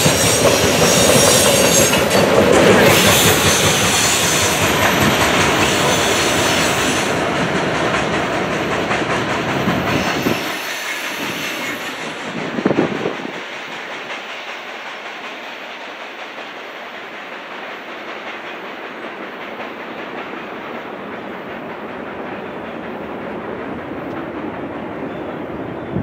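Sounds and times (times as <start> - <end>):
train wheels clicking on track: 0.0 - 26.0.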